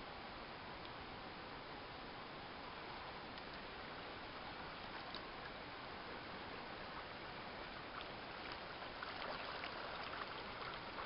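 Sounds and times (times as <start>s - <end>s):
water churning and splashing: 4.3s - 11.0s.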